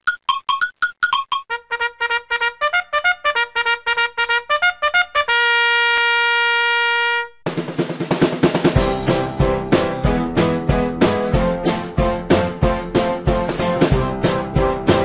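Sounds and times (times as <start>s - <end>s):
drums and band playing: 7.5s - 15.0s.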